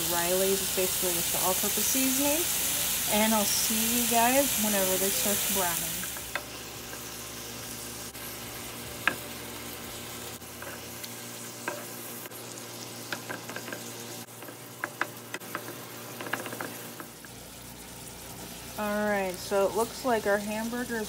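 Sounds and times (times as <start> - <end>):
meat sizzling in frying pan: 0.0 - 21.0
wooden utensil scraping pan: 13.2 - 17.1.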